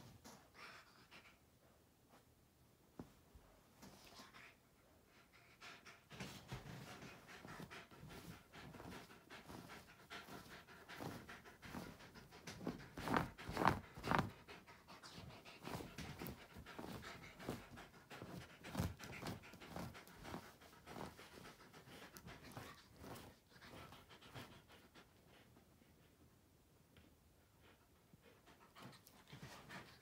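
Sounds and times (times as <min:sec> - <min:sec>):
dog panting: 0:04.0 - 0:26.3, 0:26.9 - 0:30.0
fabric rustling: 0:12.6 - 0:14.3, 0:15.6 - 0:21.2.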